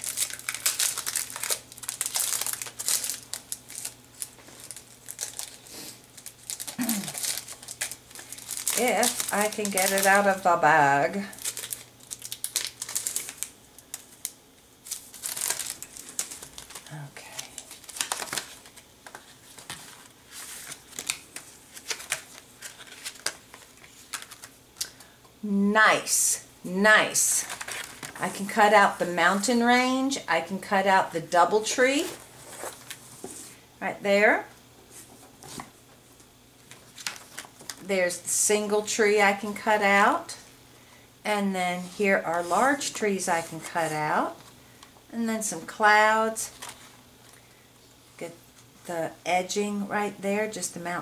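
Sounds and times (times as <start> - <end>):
plastic bag crinkling: 0.0 - 10.6, 11.2 - 24.9, 36.6 - 37.9.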